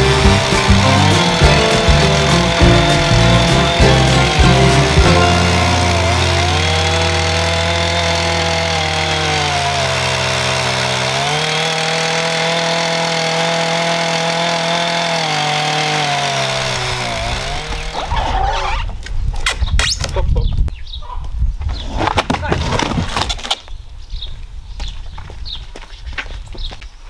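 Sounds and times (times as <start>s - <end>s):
chainsaw cutting log: 0.0s - 18.6s.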